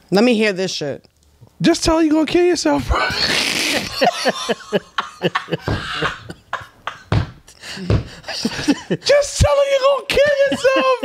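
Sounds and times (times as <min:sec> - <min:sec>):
man laughing hard: 0:02.9 - 0:09.1, 0:10.2 - 0:11.0.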